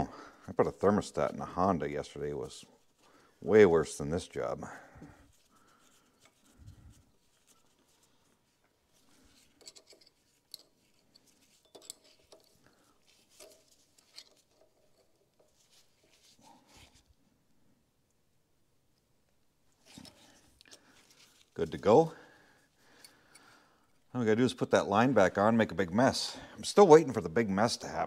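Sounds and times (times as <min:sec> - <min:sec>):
faint metallic clicks and scrapes: 0:05.0 - 0:17.2, 0:19.8 - 0:21.6, 0:22.9 - 0:24.1.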